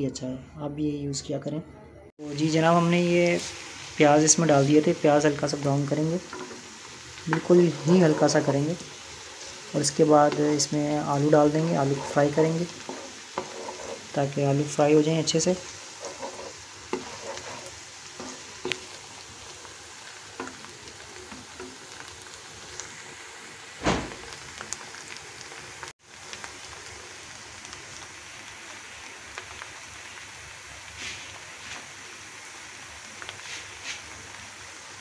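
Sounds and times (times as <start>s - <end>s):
onions sizzling in hot oil: 2.2s - 35.0s
spoon scraping a wok: 6.2s - 10.8s, 11.4s - 14.3s, 15.5s - 19.0s, 20.4s - 21.8s
loud knock: 23.8s - 24.2s.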